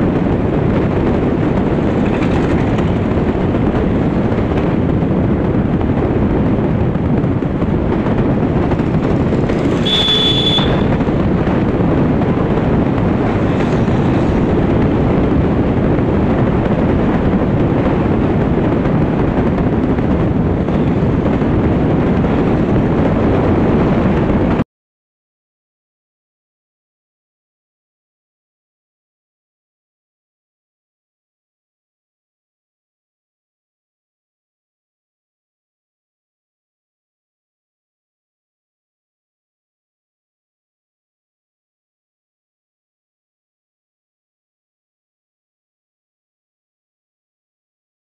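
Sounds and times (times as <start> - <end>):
motorcycle engine cruising: 0.0 - 24.6
wind rushing on microphone: 0.0 - 24.6
short high beep: 9.8 - 10.8.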